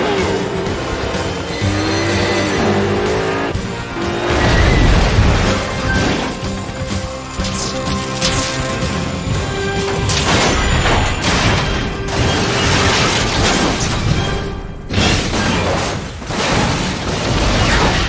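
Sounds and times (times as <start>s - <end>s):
dramatic film score: 0.0s - 18.0s
crashing and grinding metal: 3.8s - 18.0s.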